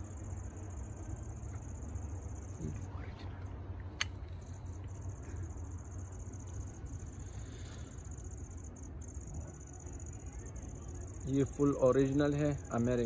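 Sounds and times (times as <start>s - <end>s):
sharp click: 3.9s - 4.2s.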